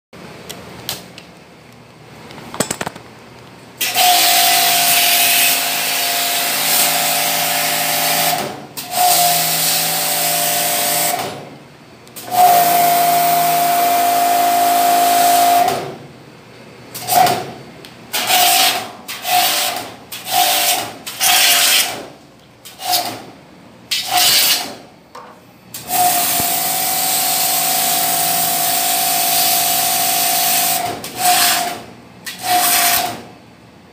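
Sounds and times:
pump buzzing: 0:25.7 - 0:33.1.

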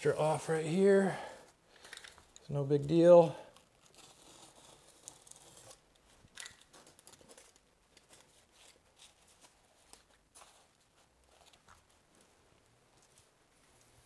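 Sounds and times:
membrane crinkling while cut: 0:03.5 - 0:11.7.

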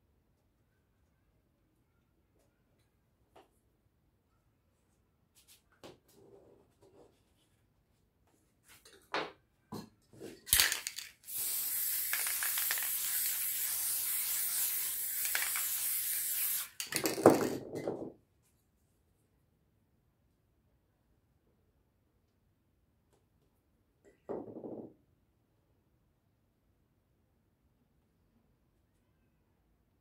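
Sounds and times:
spray paint can hissing: 0:10.5 - 0:17.2.

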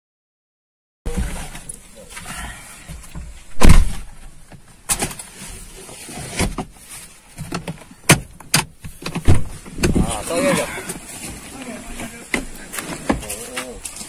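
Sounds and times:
sudden knocks and thumps: 0:07.4 - 0:10.3.

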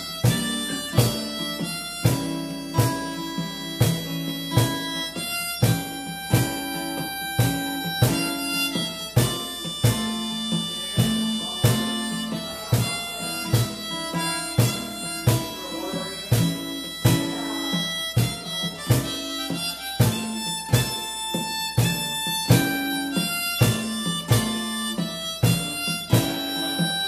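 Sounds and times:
harmonica holding long notes: 0:00.0 - 0:27.0
strummed acoustic guitar: 0:00.0 - 0:27.0.

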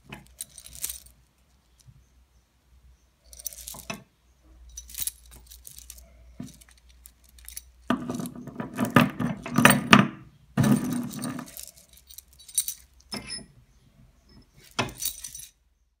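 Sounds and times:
chain links clinking: 0:00.2 - 0:01.9, 0:03.2 - 0:09.9, 0:10.6 - 0:13.5, 0:14.4 - 0:15.6.

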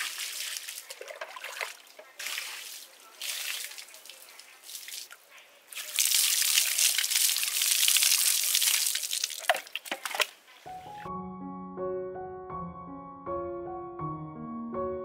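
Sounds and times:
water drips: 0:00.0 - 0:10.4
water pouring and splashing: 0:00.0 - 0:10.5.

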